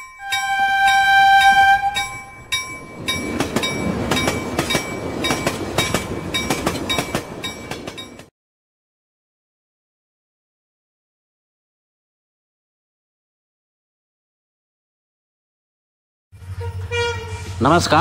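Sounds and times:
two-pitched train horn blast: 0.2s - 2.3s, 16.4s - 18.0s.

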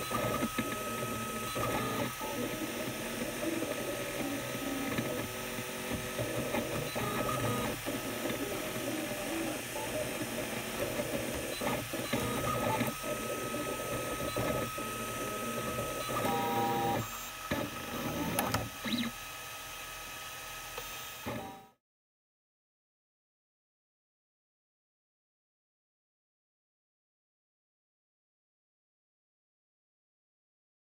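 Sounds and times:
stepper motors buzzing and whirring: 0.0s - 20.0s.

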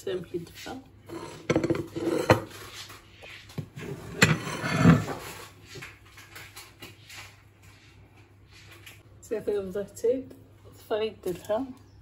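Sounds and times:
dishes clicking and knocking: 1.1s - 2.5s, 3.6s - 7.0s.

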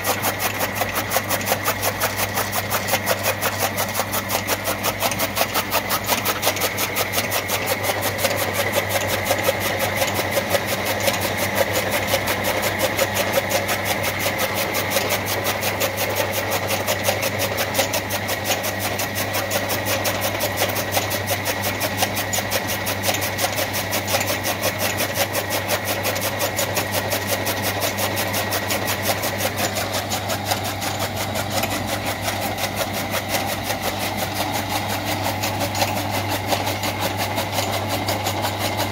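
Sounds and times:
cutting blades clattering: 27.3s - 38.9s.

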